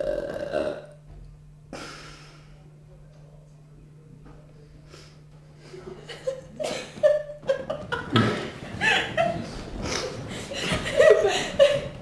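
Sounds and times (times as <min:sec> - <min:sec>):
women laughing: 0:05.9 - 0:12.0.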